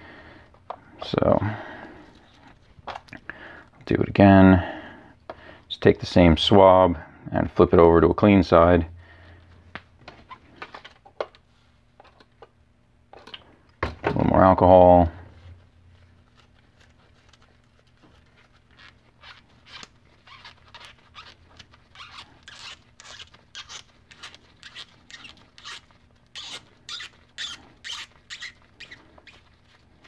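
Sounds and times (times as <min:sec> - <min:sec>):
cotton swab rubbing in threads: 0:15.9 - 0:30.0.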